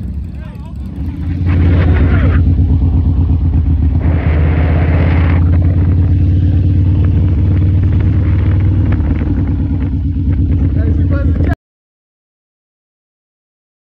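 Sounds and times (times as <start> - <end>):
motorcycle engine running: 0.0 - 11.6
burst of rushing noise: 3.6 - 10.0.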